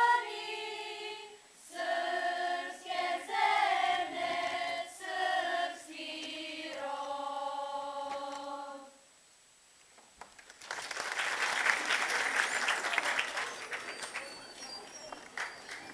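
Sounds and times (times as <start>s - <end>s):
girls' choir singing: 0.0s - 9.0s
audience applauding: 10.2s - 15.9s.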